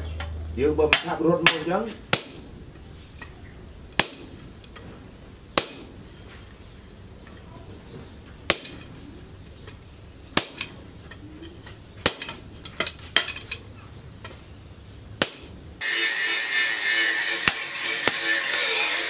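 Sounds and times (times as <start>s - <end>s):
metal clinks on anvil: 8.5s - 8.9s.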